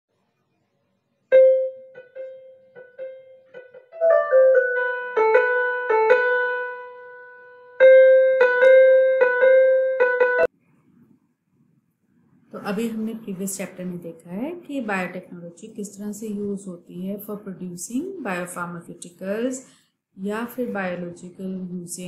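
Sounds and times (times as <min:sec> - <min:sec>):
piano tune: 0:01.3 - 0:10.5.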